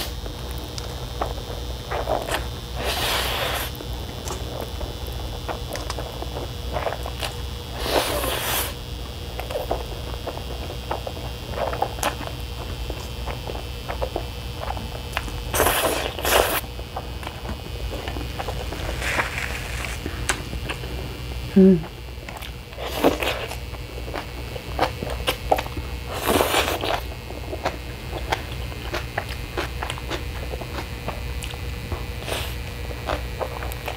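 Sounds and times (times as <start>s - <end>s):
wet chewing: 0.0s - 21.0s, 22.2s - 33.9s
noodle slurping: 1.9s - 4.4s, 6.7s - 8.8s, 15.5s - 16.7s.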